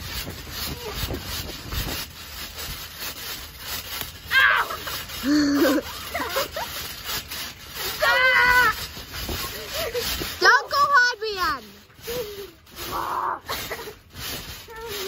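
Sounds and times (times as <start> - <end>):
trampoline thumps and creaking: 0.0 - 15.0
child laughing: 4.7 - 6.9, 9.4 - 10.2, 12.0 - 14.1
child squealing: 7.9 - 8.8.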